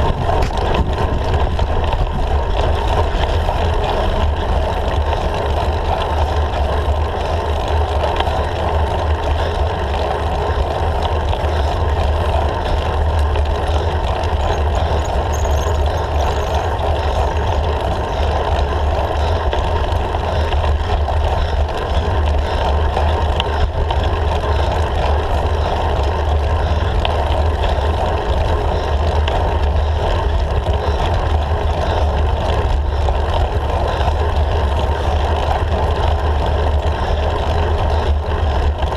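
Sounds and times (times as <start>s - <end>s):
wind on microphone: 0.0s - 4.5s
road rumble: 0.0s - 38.9s.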